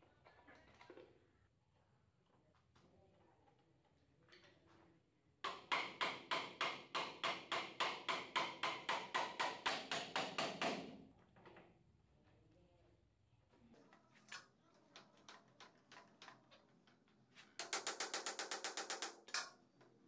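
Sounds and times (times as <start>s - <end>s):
hammer beating on metal rod: 5.5s - 10.9s.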